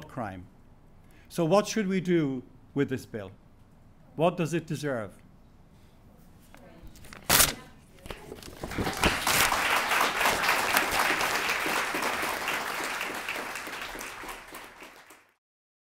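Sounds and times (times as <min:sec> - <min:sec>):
paper tearing: 0:07.0 - 0:07.7, 0:08.3 - 0:09.5
audience applause: 0:08.6 - 0:15.4.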